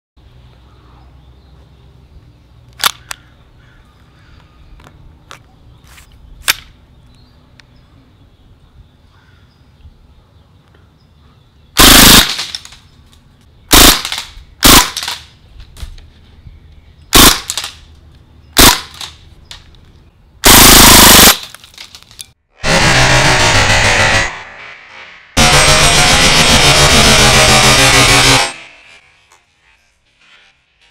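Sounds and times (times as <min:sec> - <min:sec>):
sharp click: 0:02.7 - 0:03.3.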